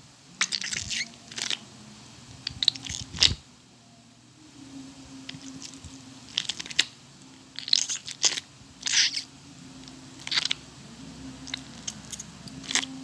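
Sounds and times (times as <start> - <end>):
stress ball squishing: 7.5 - 10.7, 11.3 - 13.0.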